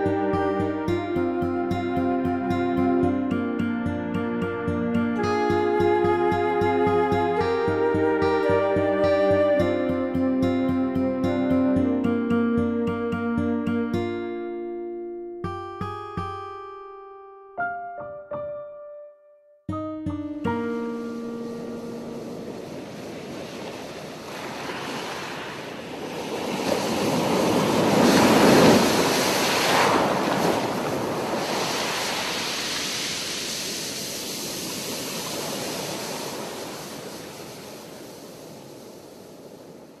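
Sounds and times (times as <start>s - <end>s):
rushing wash of noise: 20.6s - 40.0s.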